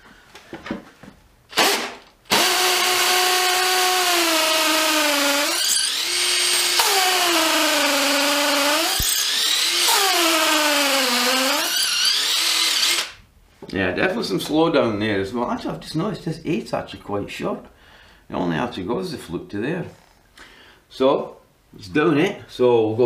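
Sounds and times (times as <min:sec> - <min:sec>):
impact driver drilling into brick: 0:01.5 - 0:13.2.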